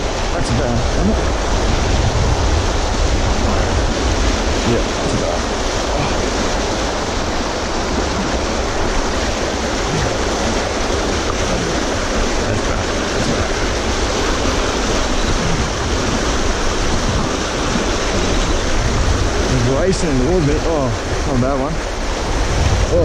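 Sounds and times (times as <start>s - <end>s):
river rushing over rocks: 0.0s - 23.0s.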